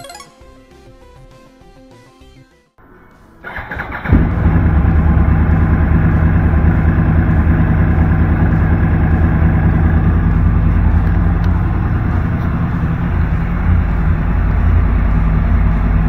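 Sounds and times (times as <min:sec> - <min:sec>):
motorcycle engine idling: 0:03.5 - 0:16.0.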